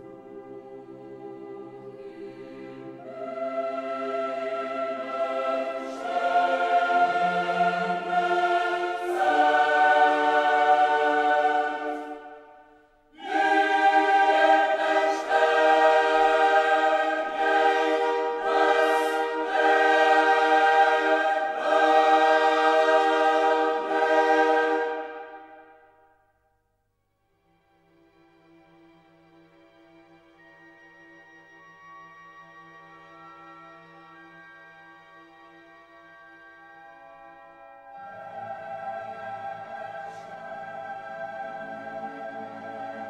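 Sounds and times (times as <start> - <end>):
choir singing held chords: 0.0 - 26.0, 37.7 - 43.0.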